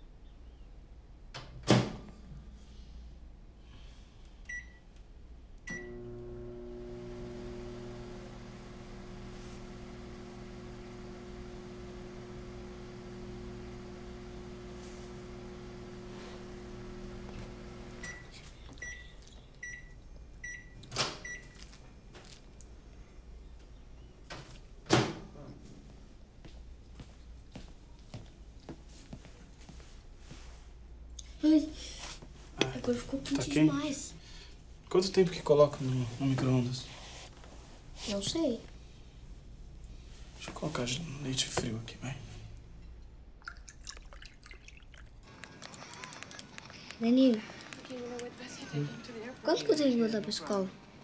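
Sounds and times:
microwave oven humming: 4.2 - 27.4.

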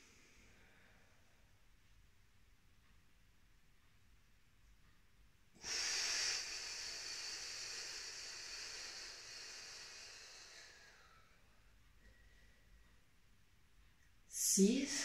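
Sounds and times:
hissing exhalation: 5.6 - 10.1.

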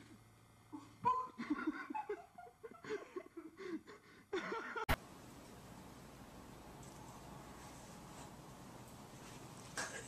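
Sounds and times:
person giggling: 0.8 - 5.0.

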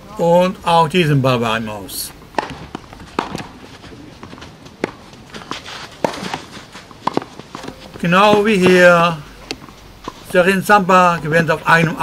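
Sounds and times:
rackets hitting tennis balls: 2.2 - 10.4
footsteps on clay court: 2.2 - 12.0
ball bounces: 2.3 - 3.6, 4.2 - 5.0, 7.0 - 10.2.

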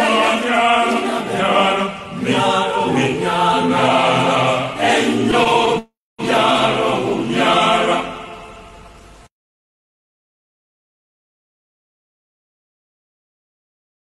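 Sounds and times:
chorus of voices chanting: 0.0 - 8.7.

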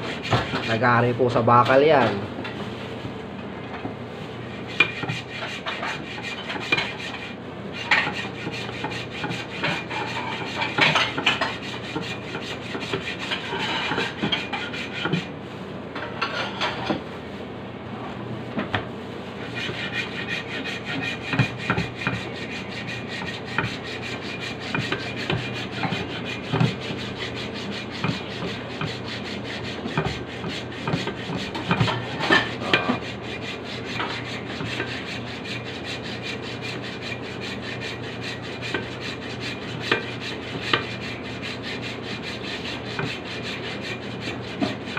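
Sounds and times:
hacksaw rasping through block: 4.7 - 7.3, 8.0 - 15.2, 19.6 - 44.9.

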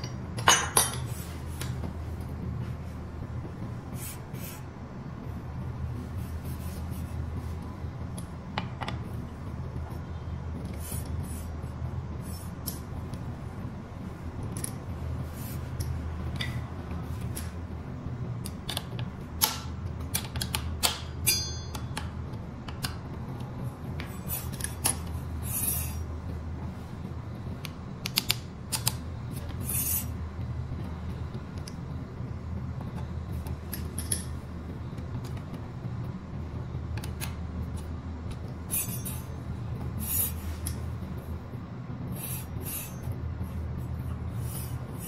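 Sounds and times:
metal tools clinking on metal: 21.2 - 22.0.

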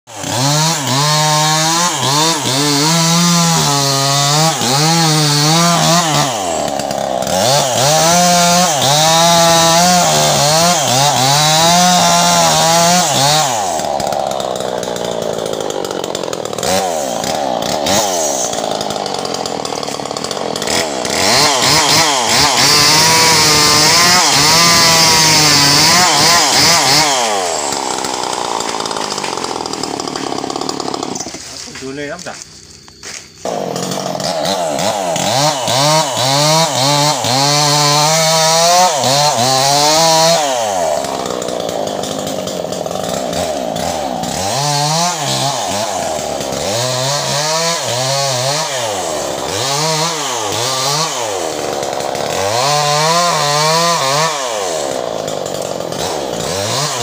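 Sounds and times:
chainsaw cutting at high revs: 0.1 - 57.0.

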